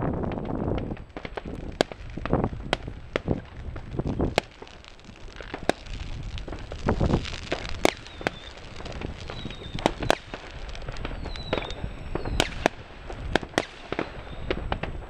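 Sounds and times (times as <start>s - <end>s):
firework bangs and cracks: 0.0s - 15.0s
firework whistle: 0.8s - 15.0s.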